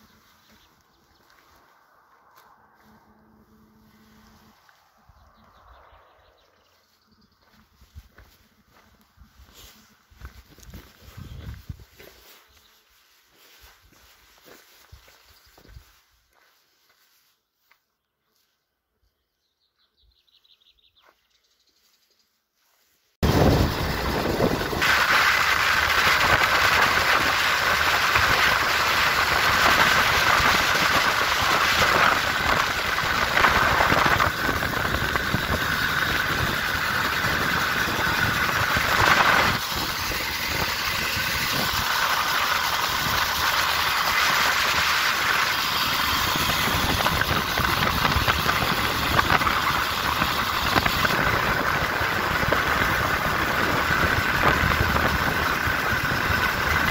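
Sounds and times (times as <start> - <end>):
vehicle engine and wind noise: 0.0 - 12.4, 23.2 - 56.9.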